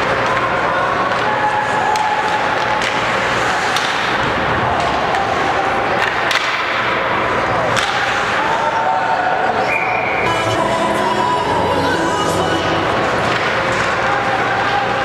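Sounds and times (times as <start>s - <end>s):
hockey sticks clicking on puck: 0.0s - 8.6s, 13.0s - 15.0s
crowd voices: 0.0s - 15.0s.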